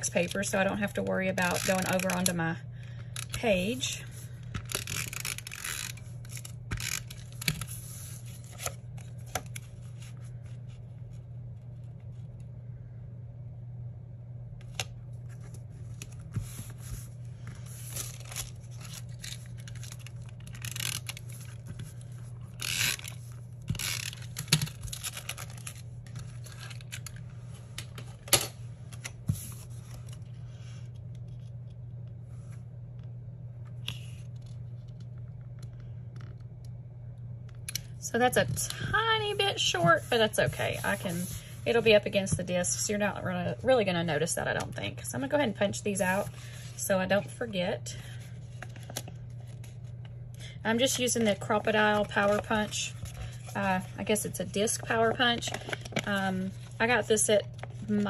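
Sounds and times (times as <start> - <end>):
steady low hum: 0.0 - 58.0
paper crinkling: 15.3 - 27.2, 51.9 - 53.9.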